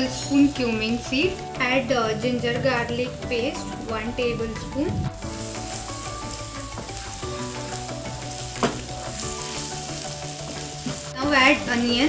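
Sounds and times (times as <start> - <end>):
paste sizzling in hot oil: 5.1 - 12.0
wooden spoon stirring: 5.2 - 11.5.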